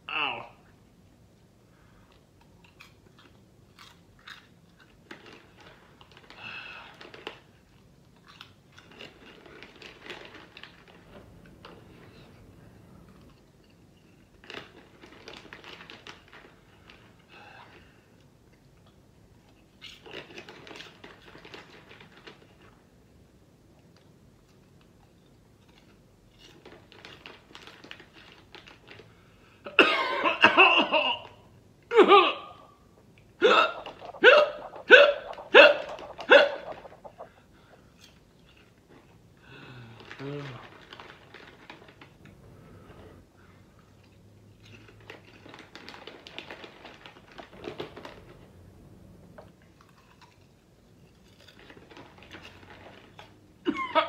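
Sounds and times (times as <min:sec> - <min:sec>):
popcorn crunching and crackling: 0:02.5 - 0:11.1, 0:13.2 - 0:17.1, 0:23.8 - 0:29.2, 0:39.6 - 0:42.4, 0:44.0 - 0:48.1, 0:49.6 - 0:53.4
man's sharp vocal spasms: 0:33.4 - 0:37.3.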